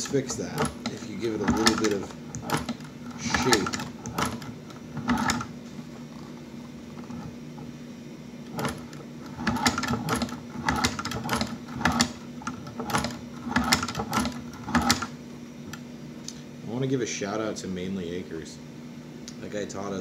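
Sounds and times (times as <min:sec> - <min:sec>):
shoe patcher stitching clicks: 0:00.0 - 0:05.5, 0:08.5 - 0:15.1.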